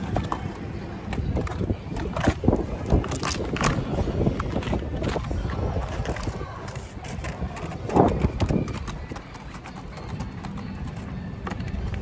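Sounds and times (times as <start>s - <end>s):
wind rumble on microphone: 0.0s - 9.6s.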